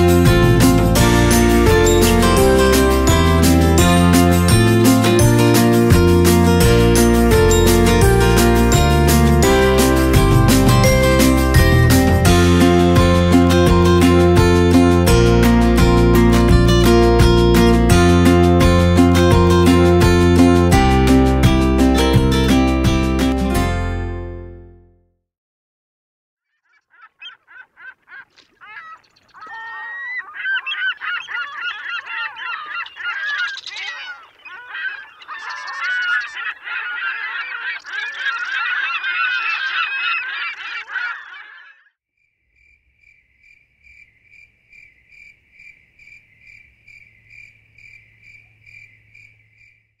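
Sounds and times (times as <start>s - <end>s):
flock of birds honking: 26.7s - 41.9s.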